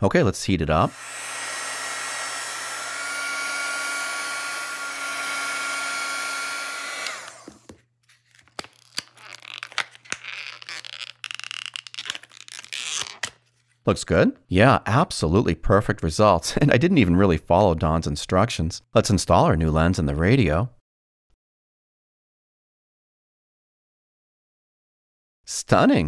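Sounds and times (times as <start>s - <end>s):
heat gun blowing and whining: 0.8s - 7.8s
plastic packaging crinkling: 7.6s - 13.8s.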